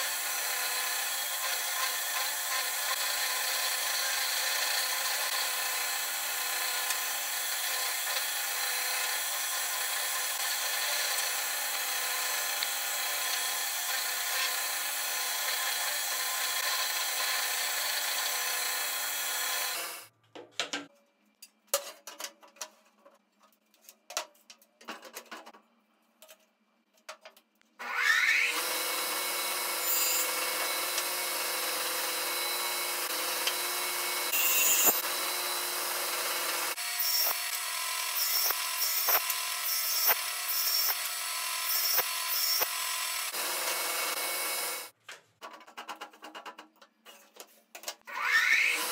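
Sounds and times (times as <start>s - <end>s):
electric drill motor running: 0.0s - 20.1s, 27.8s - 45.0s
table saw motor whine: 27.8s - 44.9s, 48.1s - 48.9s.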